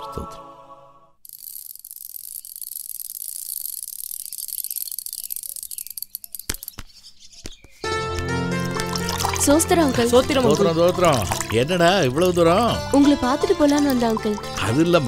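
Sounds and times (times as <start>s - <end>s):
music: 0.0s - 1.2s, 7.9s - 15.0s
bicycle chain rattling tick: 1.2s - 6.8s
sharp clicks: 1.2s - 7.1s.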